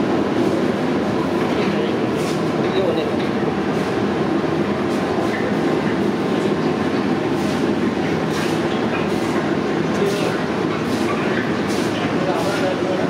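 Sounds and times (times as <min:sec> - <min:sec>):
loud rumbling background noise: 0:00.0 - 0:13.0.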